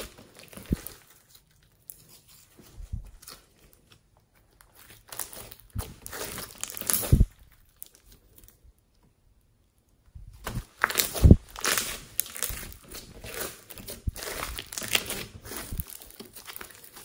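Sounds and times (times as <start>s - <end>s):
slime crackling and tearing: 0.0s - 2.5s, 4.4s - 8.6s, 10.4s - 17.0s.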